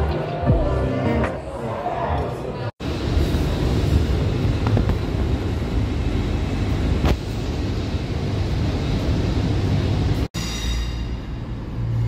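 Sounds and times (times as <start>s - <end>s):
low outdoor rumble: 2.8s - 10.3s.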